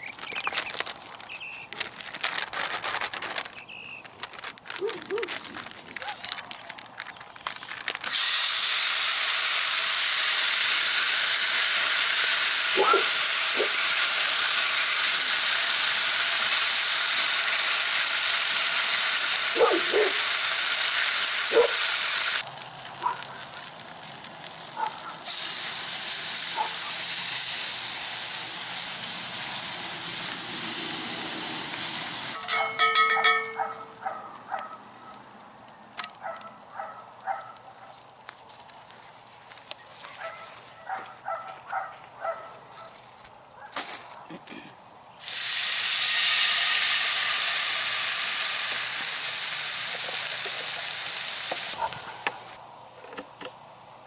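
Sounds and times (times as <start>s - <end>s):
chicken sizzling in a skillet: 7.6s - 35.4s, 45.2s - 52.6s.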